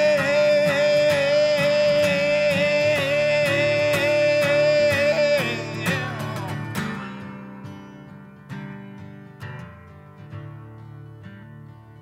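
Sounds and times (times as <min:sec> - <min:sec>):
man singing held note: 0:00.0 - 0:06.8
strummed acoustic guitar: 0:00.0 - 0:12.0.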